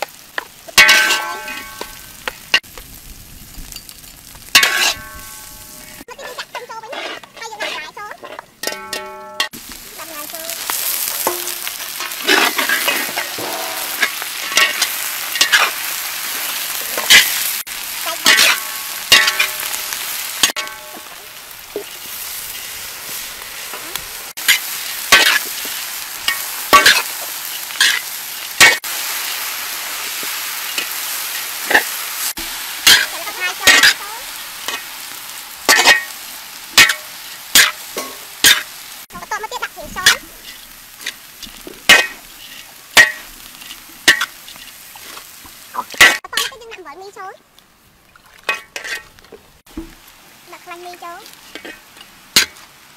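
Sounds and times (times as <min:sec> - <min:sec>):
food sizzling in a wok: 0:00.0 - 0:52.9
metal spatula scraping a wok: 0:04.5 - 0:09.6, 0:10.2 - 0:36.2, 0:39.6 - 0:46.6, 0:48.5 - 0:49.1, 0:51.3 - 0:52.6.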